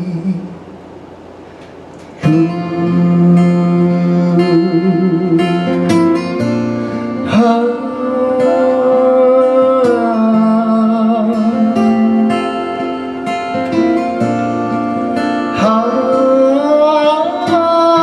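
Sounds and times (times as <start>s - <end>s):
acoustic guitars strumming: 1.4s - 18.0s
person singing long note: 7.3s - 11.6s, 15.6s - 18.0s.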